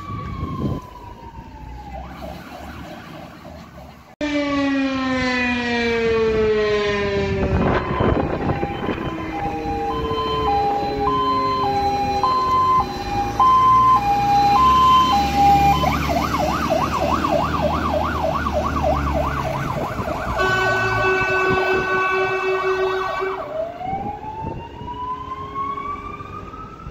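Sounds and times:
fire engine siren: 0.0s - 26.9s
truck engine rumbling: 6.0s - 26.9s.

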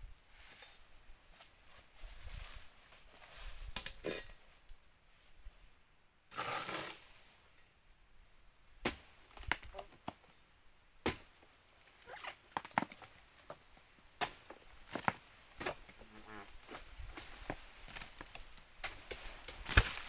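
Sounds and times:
high-pitched insect buzz: 15.9s - 17.3s.

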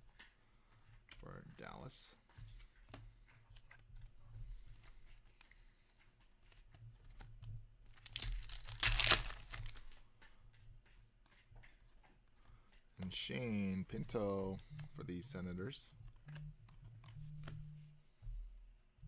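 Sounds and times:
cards clicking and rustling: 2.3s - 12.8s
wrapper ripping: 8.0s - 10.0s.

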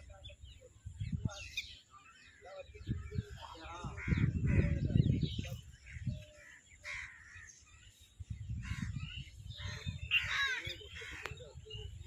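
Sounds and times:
wind rumble on microphone: 0.0s - 12.0s
crows cawing: 6.4s - 7.6s, 9.6s - 11.4s.

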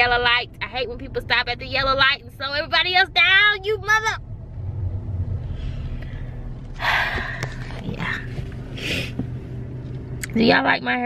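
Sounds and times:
low hum inside car: 0.0s - 11.0s
driver breathing: 5.4s - 9.5s.

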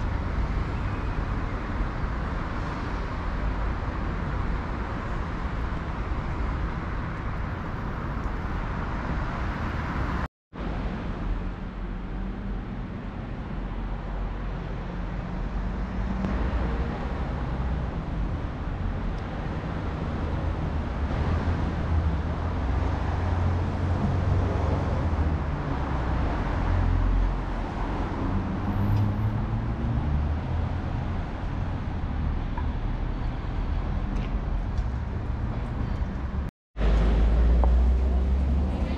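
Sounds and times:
passing cars rumbling: 0.0s - 38.9s.

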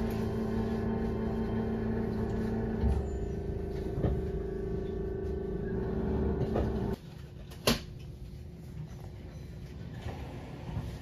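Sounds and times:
electric train hum: 0.0s - 7.0s.

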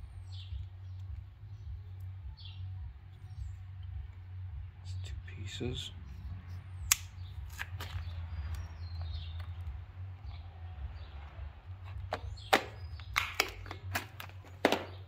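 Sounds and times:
steady low hum: 0.0s - 15.0s
cutters snipping tubing: 6.5s - 8.6s
plastic box clicks and taps: 12.0s - 15.0s.

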